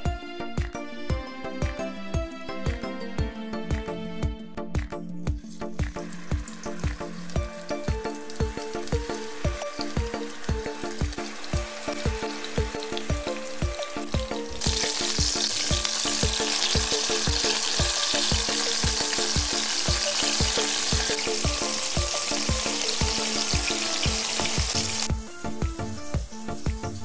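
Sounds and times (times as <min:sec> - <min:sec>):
background music with beat: 0:00.0 - 0:27.0
patties sizzling in frying pan: 0:05.7 - 0:27.0.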